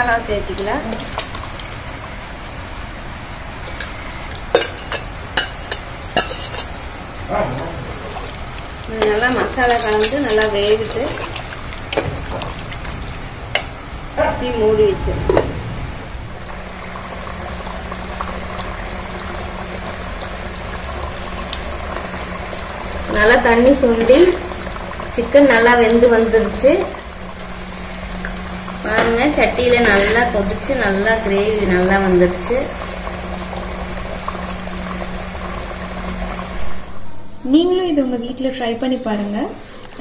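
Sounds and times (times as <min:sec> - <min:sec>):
gravy bubbling in a pot: 0:00.0 - 0:13.9, 0:16.1 - 0:37.0
metal spoon clinking on steel bowl: 0:04.6 - 0:06.7.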